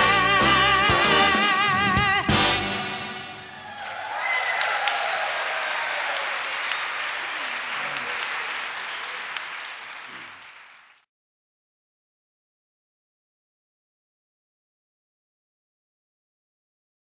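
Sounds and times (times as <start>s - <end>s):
audience applause: 3.5s - 11.1s.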